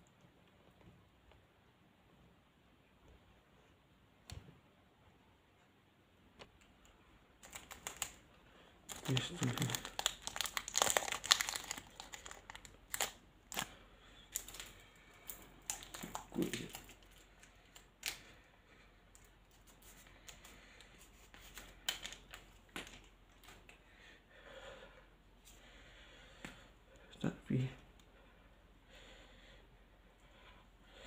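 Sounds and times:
foil wrapper crinkling and tearing: 7.4 - 8.2, 8.9 - 18.2.

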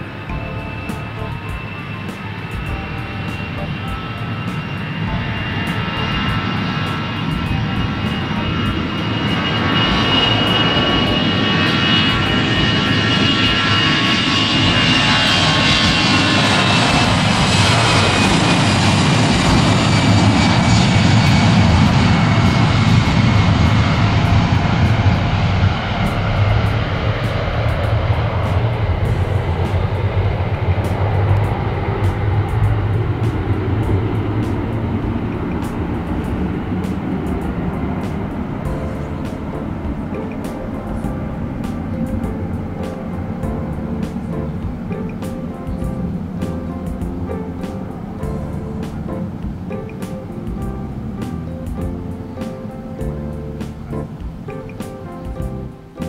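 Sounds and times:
jet engines whining: 0.0 - 56.0.

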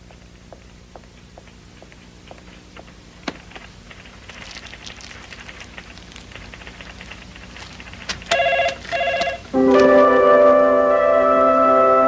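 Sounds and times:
cellophane crinkling: 2.9 - 9.9.

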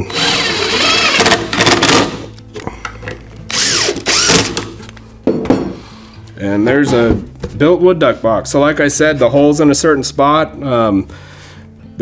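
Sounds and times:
cordless drill driving screws: 0.0 - 2.2, 3.5 - 4.7.

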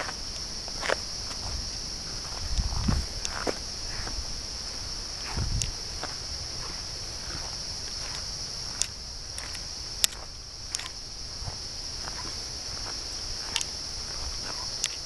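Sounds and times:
footsteps: 0.0 - 15.0
high-pitched insect drone: 0.0 - 15.0
sharp clicks: 8.7 - 11.0, 13.5 - 13.7, 14.8 - 15.0.

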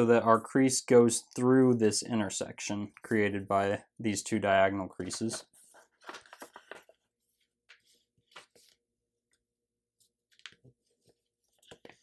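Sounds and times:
paper being folded: 5.0 - 8.9.

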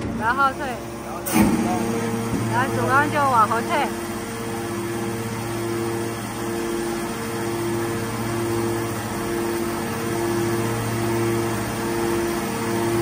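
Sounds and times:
hydraulic motor and pump hum: 0.0 - 13.0
pulsing mid-pitched whine: 0.0 - 13.0.

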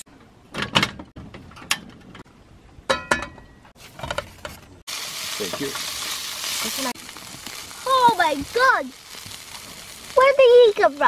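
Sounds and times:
sausages sizzling in a frying pan: 4.9 - 11.0
tongs turning sausages: 5.3 - 10.4.

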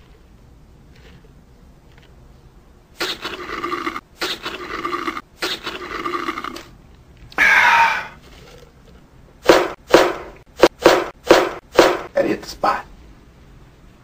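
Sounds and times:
harsh gurgling bursts: 3.0 - 6.6
slurping through a straw: 3.0 - 6.7.

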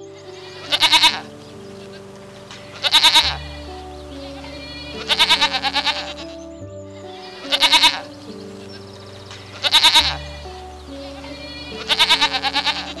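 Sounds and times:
soft piano music: 0.0 - 13.0
goats bleating: 4.3 - 6.4, 7.4 - 8.1, 9.6 - 13.0.

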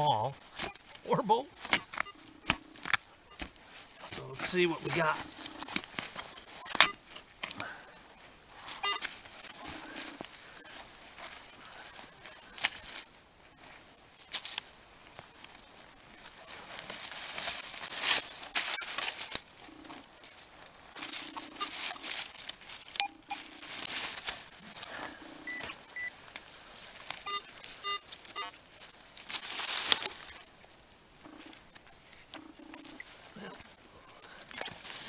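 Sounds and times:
hand digger scraping soil: 0.0 - 7.6
pinpointer electronic beeps: 0.6 - 7.1, 7.9 - 9.1, 20.9 - 23.7, 25.4 - 26.2, 27.2 - 28.6, 32.4 - 33.1
metal detector low tones: 20.9 - 23.9, 24.9 - 26.1.

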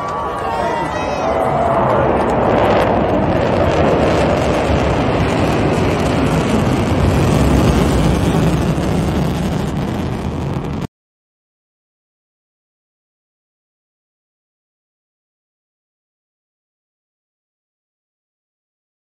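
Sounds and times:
jet bombers roaring overhead: 0.0 - 10.9.

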